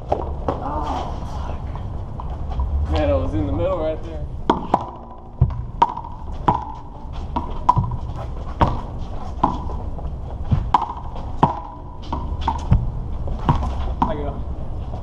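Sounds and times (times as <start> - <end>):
steady low rumble: 0.0 - 15.0
rubber ball hitting concrete wall: 4.5 - 9.7, 10.5 - 14.3.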